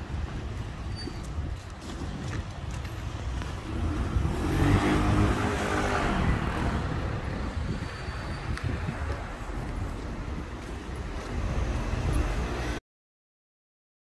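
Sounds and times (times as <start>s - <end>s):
street traffic noise: 0.0s - 12.8s
vehicle driving past: 3.6s - 8.2s.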